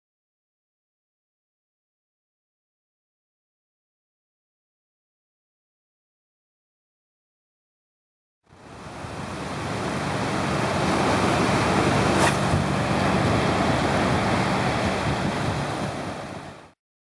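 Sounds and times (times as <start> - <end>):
ocean surf on beach: 8.5 - 16.8
wind on microphone: 9.0 - 16.6.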